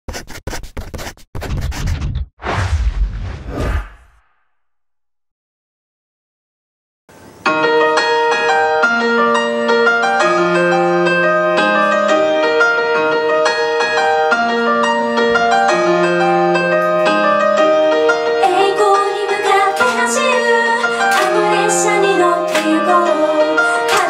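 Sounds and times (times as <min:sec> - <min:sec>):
piano chords: 0:07.2 - 0:24.0
woman singing: 0:18.4 - 0:24.0.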